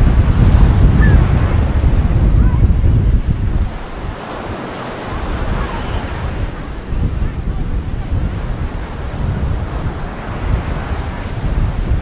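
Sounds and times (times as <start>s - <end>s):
surf breaking on beach: 0.0s - 12.0s
wind buffeting microphone: 0.0s - 12.0s.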